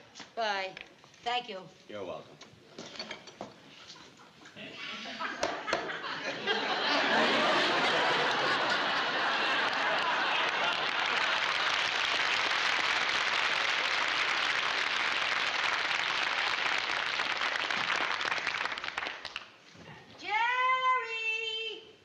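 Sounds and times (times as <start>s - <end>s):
audience applauding: 6.7s - 19.5s.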